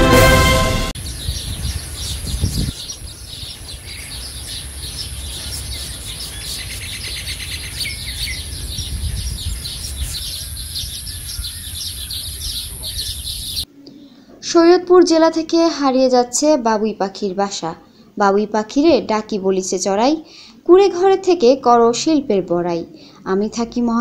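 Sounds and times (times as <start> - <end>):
birds chattering and chirping: 1.0 - 14.2.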